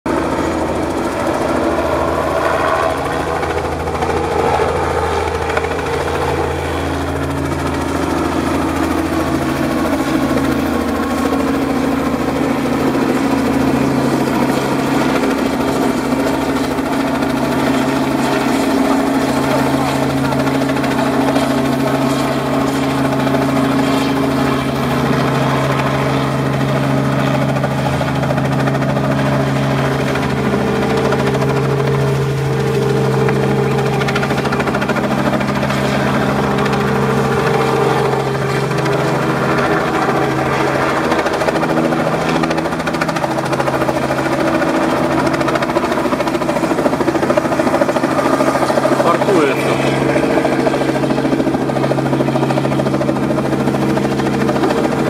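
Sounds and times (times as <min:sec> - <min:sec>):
helicopter drone: 0:00.1 - 0:55.0.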